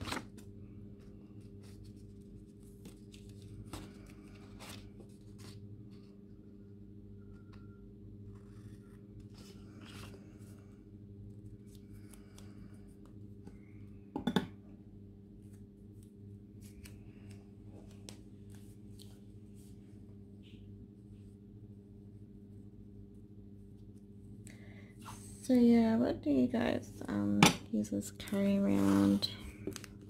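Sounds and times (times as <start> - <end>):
paper pages rustling: 0.0 - 0.4, 1.2 - 6.1
steady low hum: 0.0 - 30.0.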